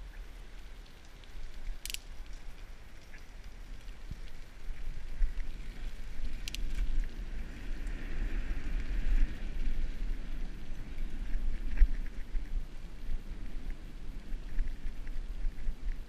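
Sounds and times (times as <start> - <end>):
bicycle rolling on concrete: 0.0 - 16.0
sharp clicks: 1.7 - 2.4.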